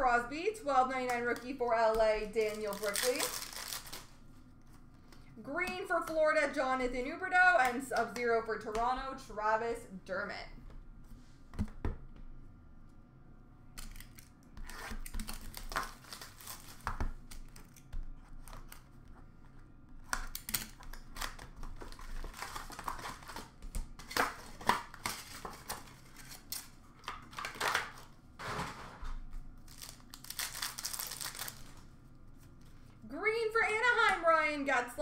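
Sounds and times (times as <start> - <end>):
wrappers tearing and crinkling: 2.2 - 4.2, 13.8 - 19.0, 20.3 - 28.1, 29.6 - 32.5
cards being handled: 2.3 - 5.4, 29.6 - 33.0.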